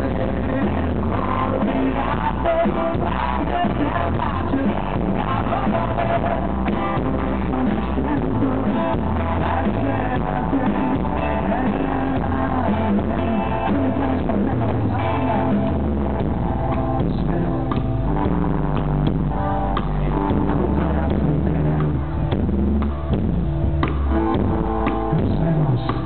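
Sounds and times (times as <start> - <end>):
man singing: 0.0 - 22.5, 24.4 - 26.0
bass guitar: 0.0 - 26.0
drum kit: 0.0 - 26.0
electric guitar: 0.0 - 26.0.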